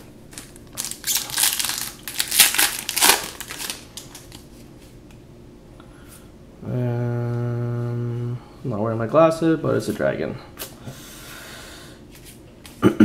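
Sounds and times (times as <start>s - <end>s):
foil wrapper tearing and crinkling: 0.3s - 4.4s.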